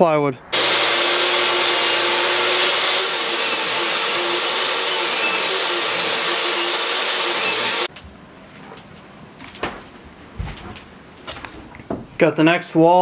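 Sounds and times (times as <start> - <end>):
table saw cutting wood: 0.5 - 7.9.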